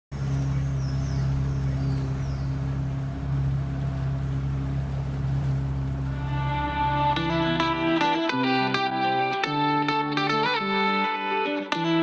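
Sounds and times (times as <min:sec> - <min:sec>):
drone motors humming: 0:00.2 - 0:09.2.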